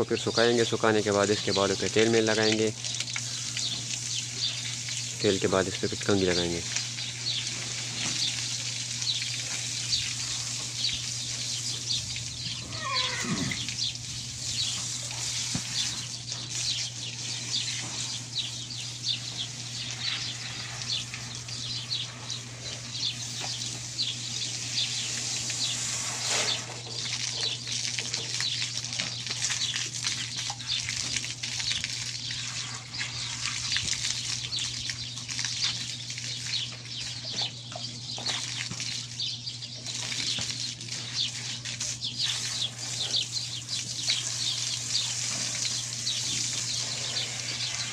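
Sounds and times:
hose spraying water: 0.0s - 37.3s, 39.8s - 47.9s
steady low hum: 0.0s - 47.9s
short falling animal call: 12.6s - 13.8s.

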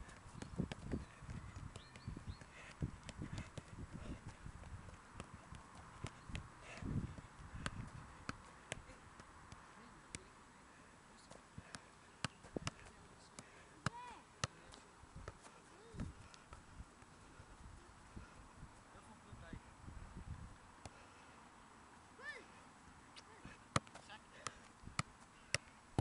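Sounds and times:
ball bouncing on turf: 0.0s - 10.3s, 11.6s - 16.6s, 23.4s - 26.0s
foot tapping football: 0.0s - 10.3s, 11.3s - 17.1s, 23.5s - 26.0s.

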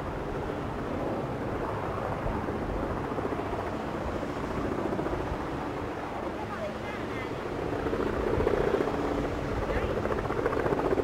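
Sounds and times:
blimp propeller engines droning: 0.0s - 11.0s.

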